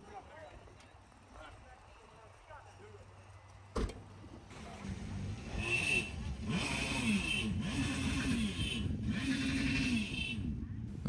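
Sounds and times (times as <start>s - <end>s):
jet ski engine revving: 4.5s - 10.6s.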